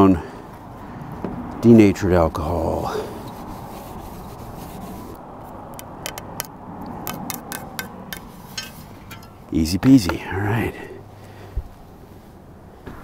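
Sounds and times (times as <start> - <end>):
cloth rubbing: 3.3 - 5.2.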